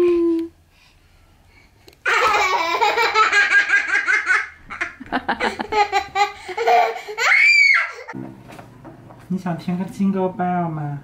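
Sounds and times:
toddler laughing: 2.0 - 8.2.

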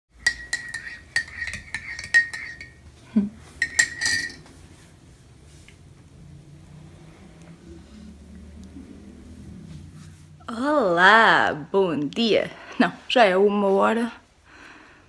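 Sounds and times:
metal spoon clinking in ceramic mug: 0.2 - 2.8, 3.6 - 4.5.

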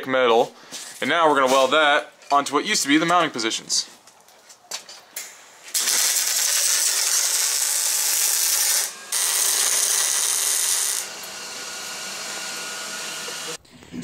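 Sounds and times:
arc welding hiss: 5.2 - 11.4.

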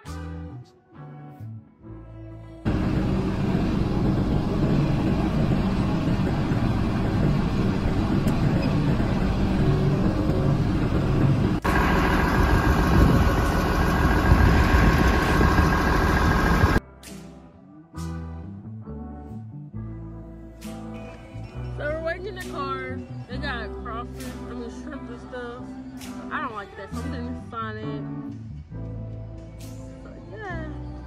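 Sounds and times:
background music: 0.0 - 13.2, 15.2 - 31.0
tractor engine running: 2.7 - 16.8.

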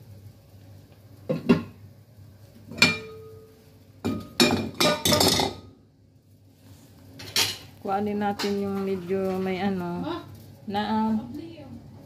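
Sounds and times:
pot and glass lid clattering: 1.3 - 1.8, 2.7 - 3.4, 4.0 - 5.7.

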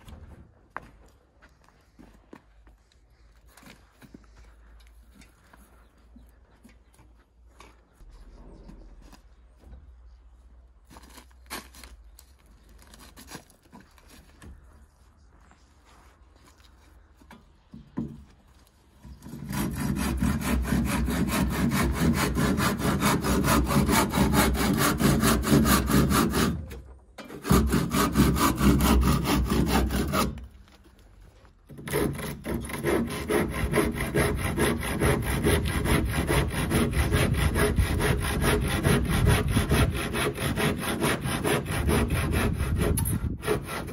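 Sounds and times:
hand saw cutting wood: 19.0 - 30.6, 31.7 - 43.9.

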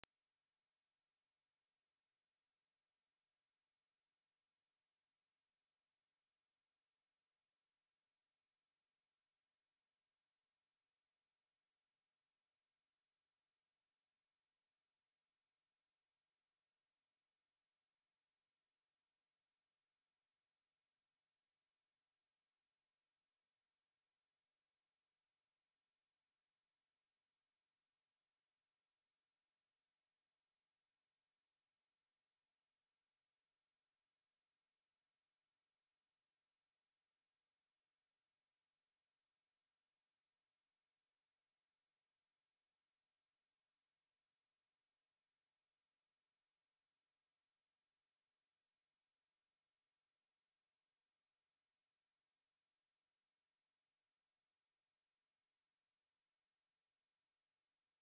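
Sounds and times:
high-pitched sine test tone: 0.0 - 4.0.

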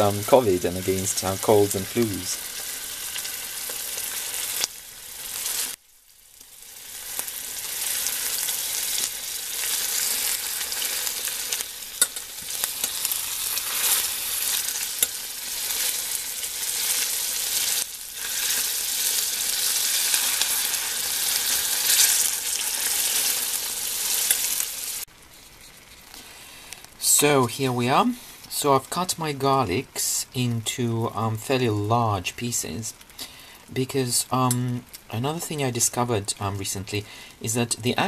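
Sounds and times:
steak sizzling in frying pan: 0.8 - 25.1.

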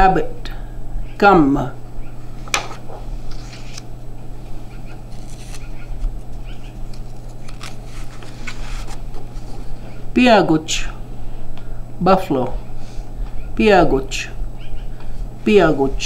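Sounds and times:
low room hum: 0.0 - 16.0
paper sheets rustling: 2.4 - 3.9, 5.0 - 9.7.

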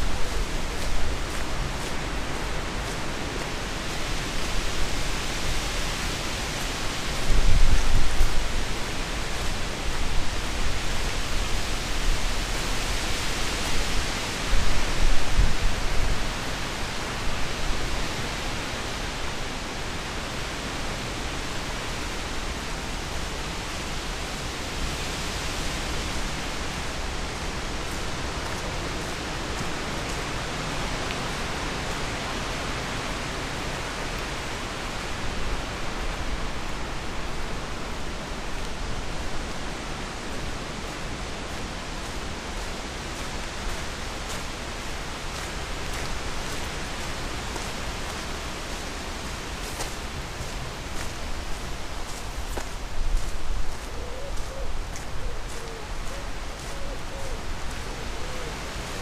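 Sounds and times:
wind blowing: 0.0 - 18.6.

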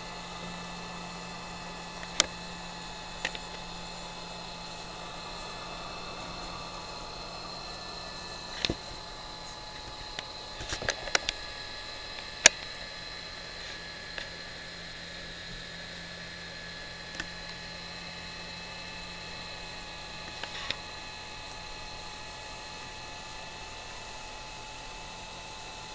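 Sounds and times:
laser engraver hiss and whine: 0.0 - 25.9
sharp clicks: 8.6 - 12.9.

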